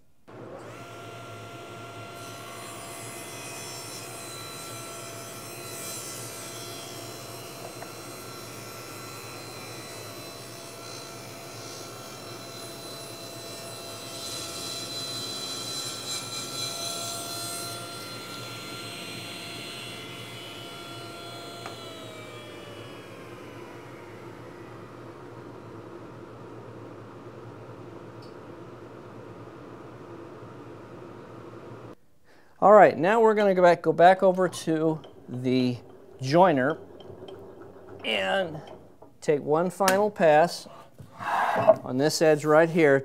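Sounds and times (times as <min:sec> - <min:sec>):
table saw whining: 0:00.3 - 0:26.6, 0:33.4 - 0:40.7
saw cutting board: 0:00.6 - 0:24.3.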